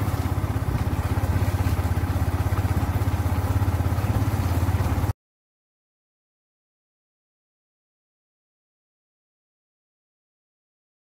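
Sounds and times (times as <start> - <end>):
motorcycle engine running: 0.0 - 5.1.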